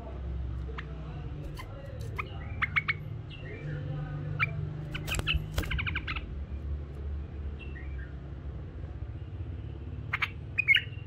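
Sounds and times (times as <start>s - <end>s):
bird chirping: 0.6s - 8.3s, 9.9s - 11.0s.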